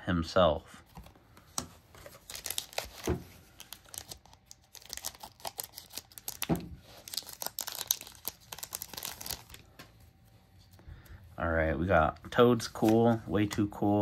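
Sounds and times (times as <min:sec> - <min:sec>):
foil pack crinkling and tearing: 0:02.0 - 0:09.7.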